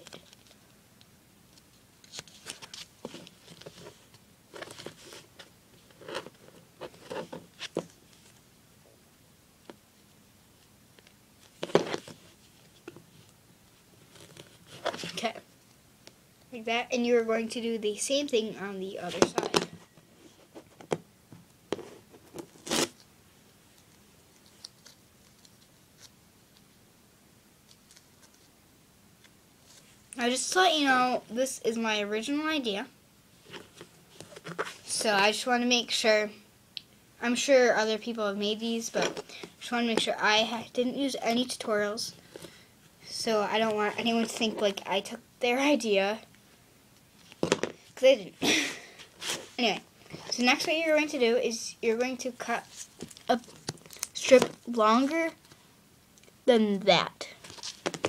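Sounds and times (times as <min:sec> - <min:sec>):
tape and paper crinkling: 0:01.5 - 0:08.4, 0:52.4 - 0:55.6, 0:57.4 - 0:58.0.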